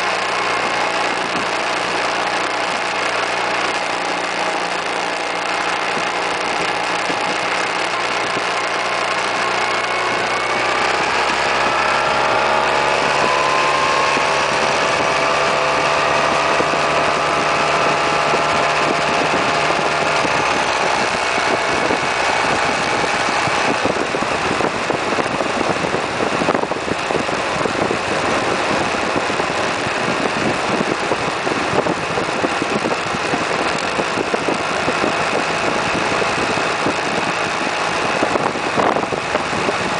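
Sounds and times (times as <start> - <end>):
scooter engine accelerating: 0.0 - 39.9
wind rushing over microphone: 0.0 - 39.9.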